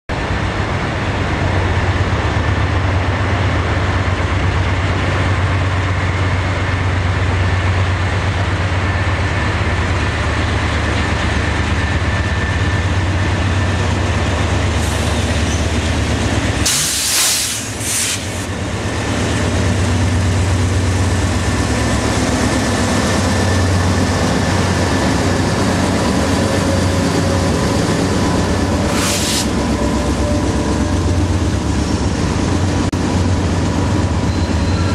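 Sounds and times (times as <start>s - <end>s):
diesel locomotive rumble: 0.1s - 34.9s
rolling rumble of train cars: 0.1s - 34.9s
loud air hiss: 16.6s - 18.5s, 28.9s - 29.6s.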